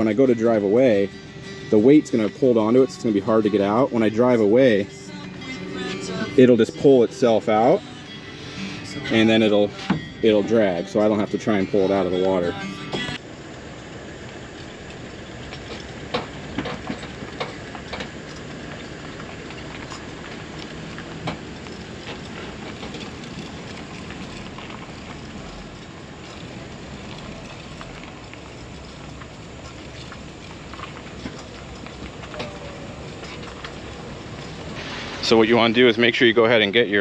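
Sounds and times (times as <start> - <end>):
road rumble of trailer rolling: 0.0 - 37.0
wind: 0.0 - 37.0
trailer frame rattles and knocks: 14.5 - 37.0.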